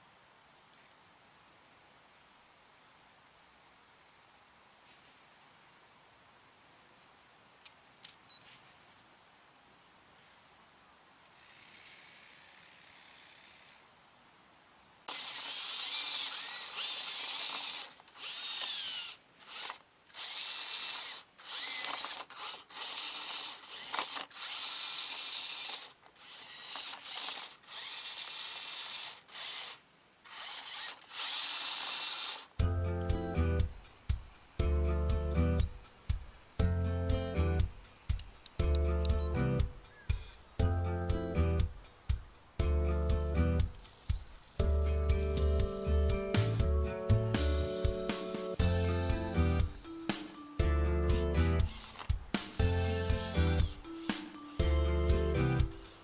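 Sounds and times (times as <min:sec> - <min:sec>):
faint high hiss: 0:00.0 - 0:56.0
small electric motors whining: 0:11.4 - 0:13.8, 0:15.1 - 0:32.6, 0:51.4 - 0:53.9.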